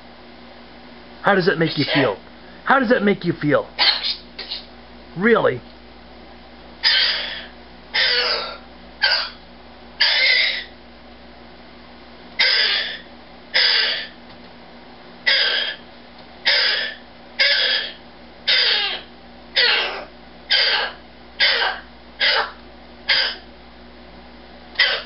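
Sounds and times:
cockatoo screeching: 0:01.7 - 0:02.2, 0:03.8 - 0:04.7, 0:06.8 - 0:09.4, 0:10.0 - 0:10.8, 0:12.4 - 0:14.2, 0:15.2 - 0:15.8, 0:16.4 - 0:23.5, 0:24.8 - 0:25.0.

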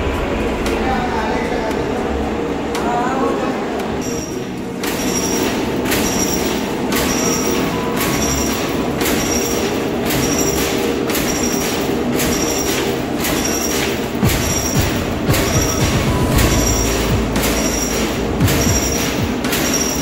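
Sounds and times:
machine humming: 0:00.0 - 0:20.0.

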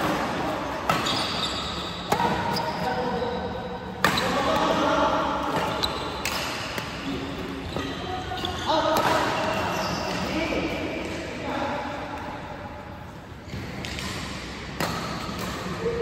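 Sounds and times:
rackets hitting shuttlecock: 0:00.0 - 0:02.7, 0:04.0 - 0:07.9, 0:08.8 - 0:10.3, 0:13.6 - 0:15.9.

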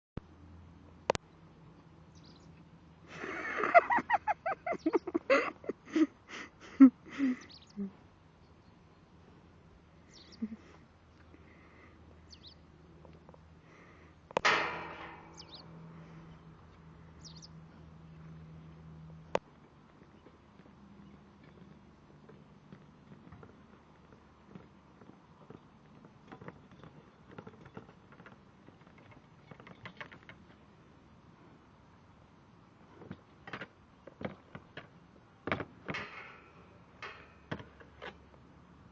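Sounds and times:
small birds chirping: 0:01.1 - 0:02.8, 0:04.4 - 0:06.0, 0:07.1 - 0:14.1, 0:15.3 - 0:30.8
metal gate clanking and rattling: 0:14.4 - 0:16.4, 0:35.5 - 0:38.4.

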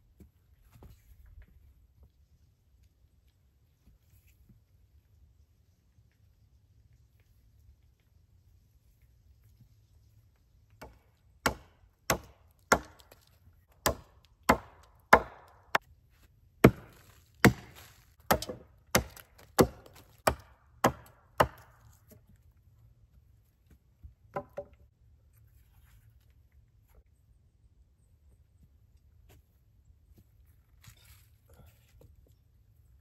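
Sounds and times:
axe chopping wood: 0:10.8 - 0:15.8, 0:16.6 - 0:22.2.

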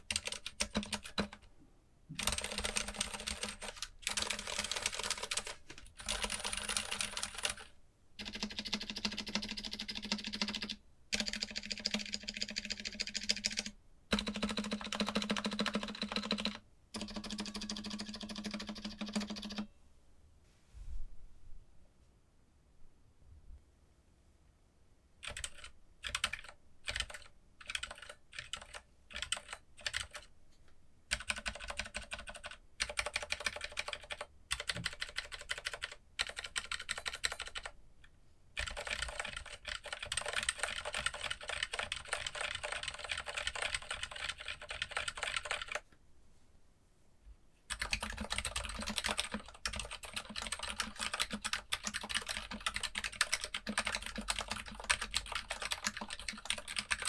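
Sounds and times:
typing on keyboard: 0:00.0 - 0:01.5, 0:02.2 - 0:19.7, 0:25.2 - 0:30.3, 0:31.1 - 0:37.8, 0:38.6 - 0:45.8, 0:47.7 - 0:57.0.

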